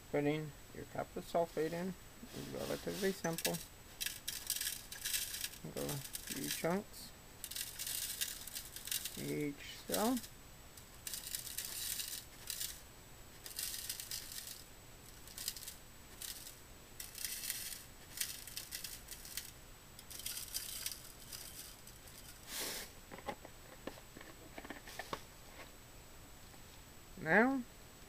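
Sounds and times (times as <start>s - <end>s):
crystals pouring into plastic tray: 1.5s - 6.7s, 7.4s - 10.3s, 11.0s - 12.8s, 13.4s - 22.4s.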